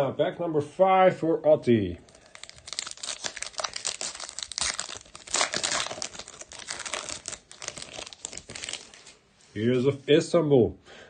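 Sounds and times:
foil wrapper crinkling and tearing: 0:02.1 - 0:09.2.

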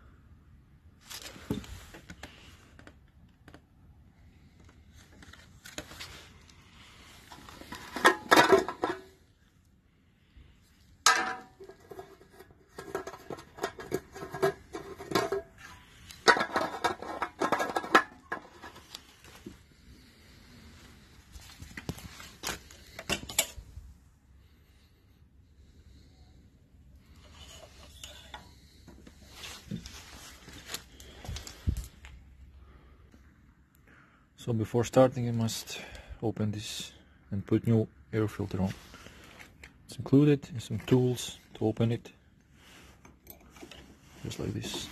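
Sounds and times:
plastic parts clicking and clattering: 0:07.3 - 0:09.2, 0:11.1 - 0:19.5.

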